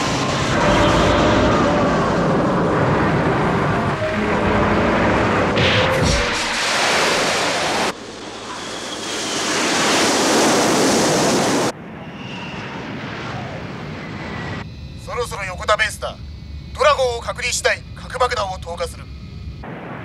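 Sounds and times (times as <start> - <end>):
jet rushing: 0.0 - 14.6.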